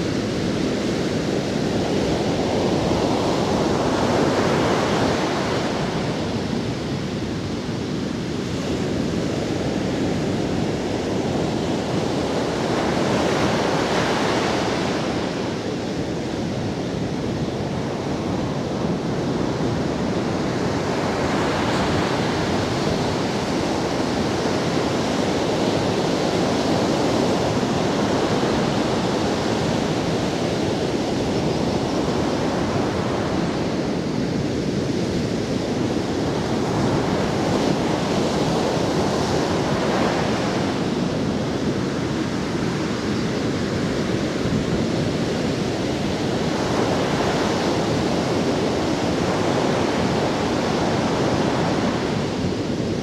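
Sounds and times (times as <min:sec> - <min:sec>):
ocean surf breaking: 0:41.8 - 0:53.0.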